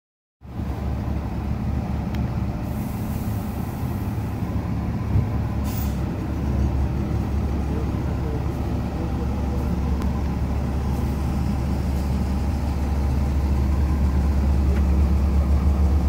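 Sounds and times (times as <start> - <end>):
street traffic rumble: 0.4 - 16.0
air brake hisses: 2.6 - 4.2, 5.6 - 6.1.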